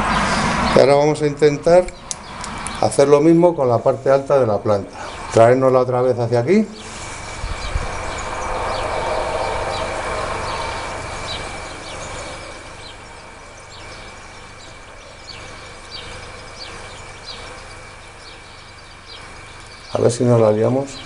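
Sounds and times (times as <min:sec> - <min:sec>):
high-pitched hum: 0:00.0 - 0:21.0
small birds chirping: 0:00.0 - 0:21.0
rumbling noise: 0:05.2 - 0:16.9.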